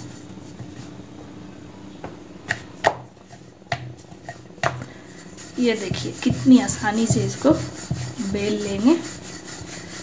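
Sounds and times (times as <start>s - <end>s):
faint steady hum: 0.0s - 10.0s
rolling pin knocking on board: 5.8s - 8.2s.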